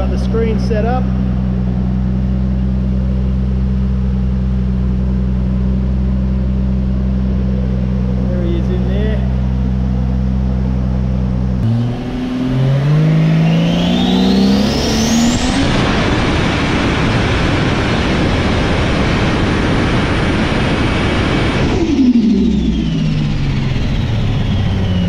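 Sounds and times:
car engine revving: 0.0s - 25.0s
high turbo whine: 0.0s - 25.0s.

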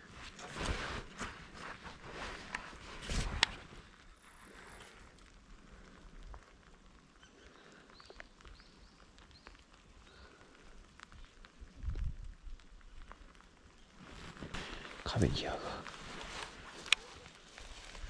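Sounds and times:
faint hiss: 0.0s - 18.0s
light ticks: 16.8s - 17.4s.

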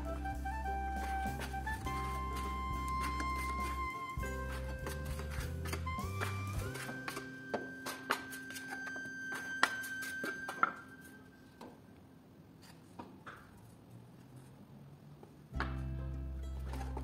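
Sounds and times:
metal spatula scraping and tapping: 1.3s - 11.2s.

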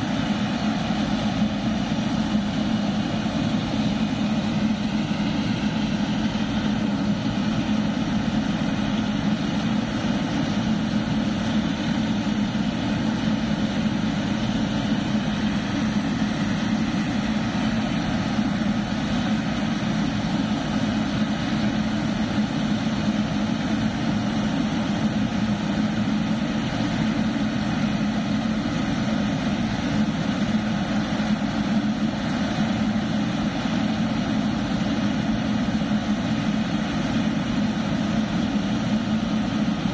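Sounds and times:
jet engines running at low power: 0.0s - 39.9s.

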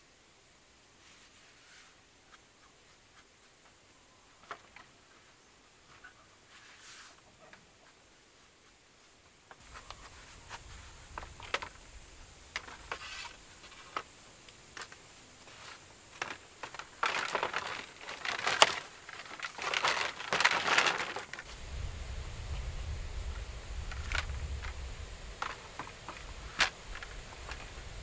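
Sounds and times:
leaves and brush rustling: 0.0s - 28.0s
bamboo poles clacking: 4.4s - 5.1s, 9.5s - 11.9s, 12.5s - 21.5s, 23.9s - 27.8s.

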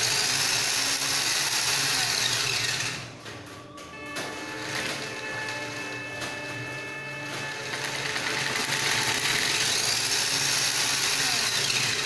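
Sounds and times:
toy car electric motor whirring: 0.0s - 3.1s, 7.2s - 12.0s.

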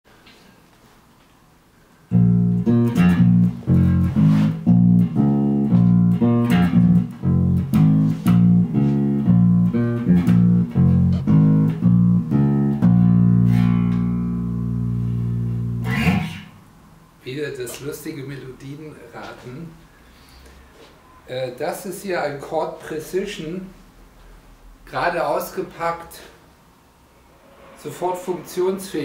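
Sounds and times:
electric bass plucked notes: 2.1s - 16.6s.

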